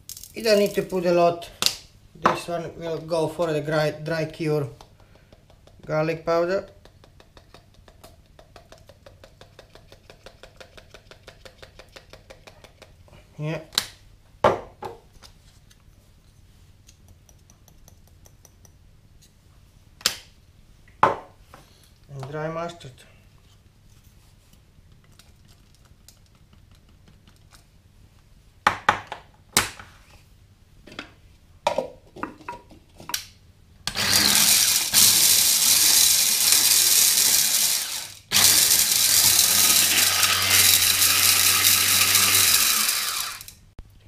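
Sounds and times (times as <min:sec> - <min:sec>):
knocks and taps: 0:06.6 - 0:13.0
electric chopper motor grinding: 0:33.9 - 0:43.6.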